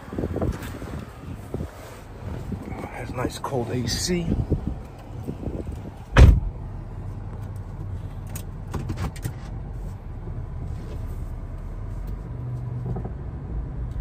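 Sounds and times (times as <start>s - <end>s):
sharp thump: 6.1s - 6.5s.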